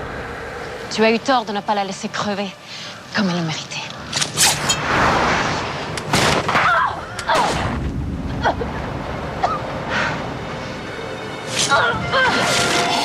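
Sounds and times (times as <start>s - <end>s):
sharp cracks: 5.9s - 7.9s.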